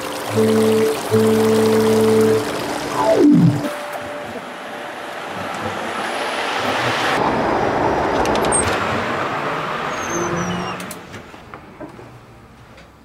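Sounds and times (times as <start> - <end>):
passing cars: 2.1 - 12.5.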